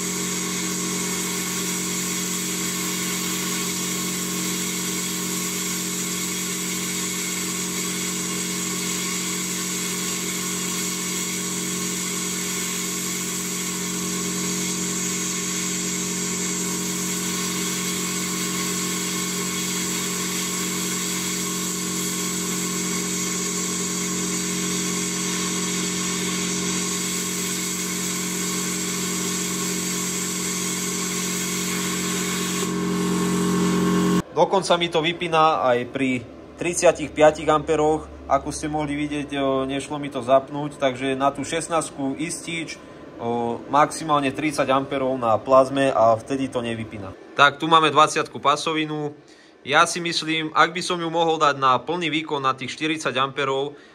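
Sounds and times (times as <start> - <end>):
plasma arc hissing: 0.0 - 34.2.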